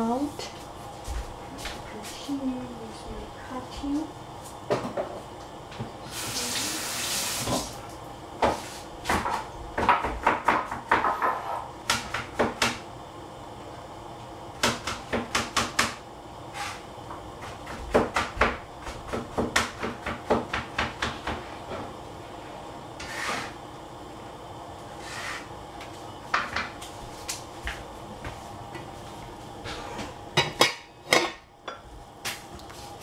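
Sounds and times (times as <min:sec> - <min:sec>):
kitchen tap running: 0:06.0 - 0:07.9.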